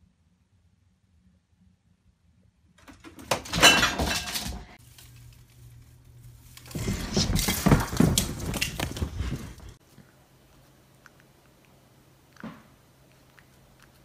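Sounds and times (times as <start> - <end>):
decorations clattering: 2.8 - 9.8
branches rustling: 4.8 - 9.9.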